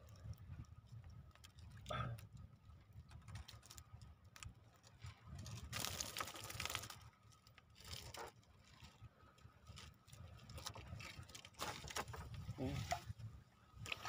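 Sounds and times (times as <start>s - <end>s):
fishing net rustling: 3.0s - 13.2s.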